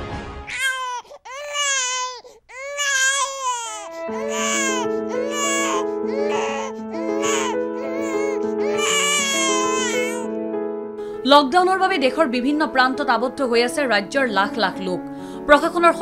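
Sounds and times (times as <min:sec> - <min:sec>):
newborn baby crying: 0:00.5 - 0:10.3
background music with held notes: 0:03.8 - 0:16.0.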